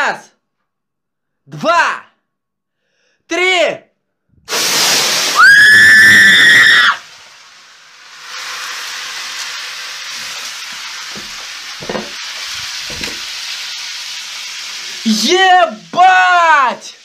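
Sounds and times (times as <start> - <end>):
oil fire hissing sizzle: 4.5 - 17.0
high-pitched scream: 5.2 - 7.1.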